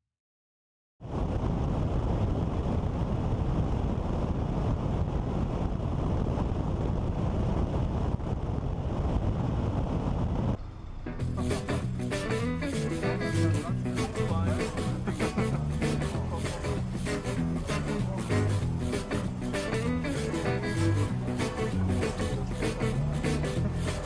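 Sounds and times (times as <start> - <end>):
wind rushing over camera: 1.0 - 12.7
road and engine noise: 8.1 - 24.0
music: 11.1 - 24.0.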